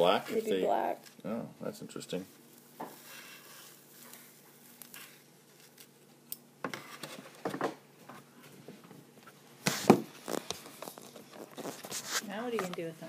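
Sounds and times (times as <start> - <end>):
handling rustles and scrapes: 2.3 - 5.9, 6.7 - 13.0.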